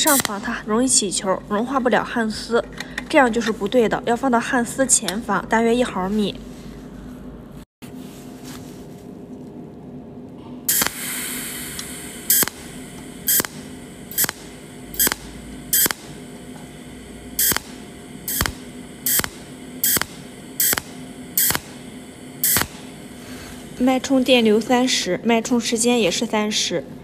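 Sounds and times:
welding arc zaps: 0:00.0 - 0:00.6, 0:10.7 - 0:24.9
steady low hum: 0:00.0 - 0:27.0.

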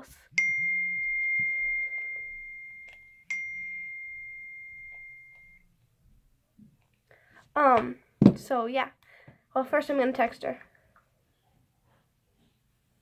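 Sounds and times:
high bell-like tone ringing: 0:00.3 - 0:05.8.

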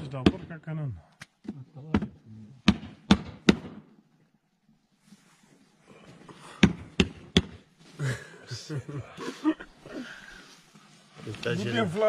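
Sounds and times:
faint rustle: 0:04.7 - 0:06.3, 0:09.6 - 0:12.0.

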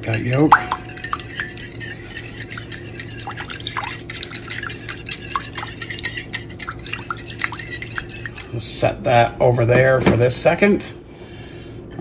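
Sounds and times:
whisk beating liquid in a bowl: 0:00.0 - 0:08.7.

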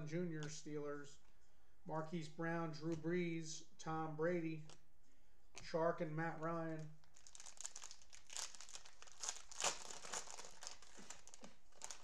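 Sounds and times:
cellophane wrapper crinkling: 0:06.8 - 0:12.0.

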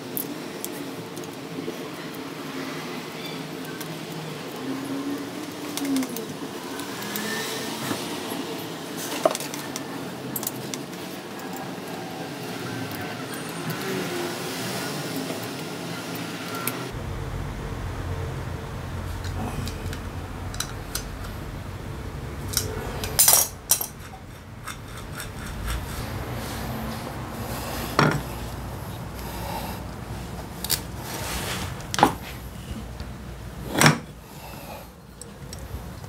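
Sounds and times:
steady low hum: 0:16.9 - 0:36.0
metal tools clinking: 0:22.5 - 0:26.0.

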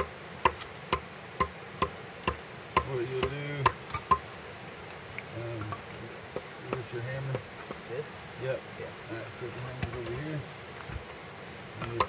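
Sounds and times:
hand tool chopping firewood: 0:00.0 - 0:04.2, 0:11.8 - 0:12.0.

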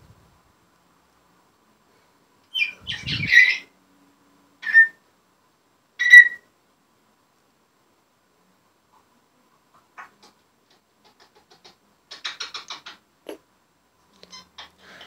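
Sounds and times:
parrot calling and whistling: 0:02.5 - 0:03.7, 0:04.6 - 0:05.0, 0:06.0 - 0:06.4.

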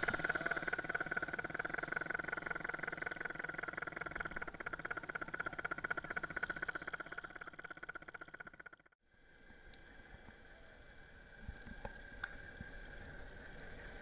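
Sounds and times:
model boat engine chugging: 0:00.0 - 0:09.0.

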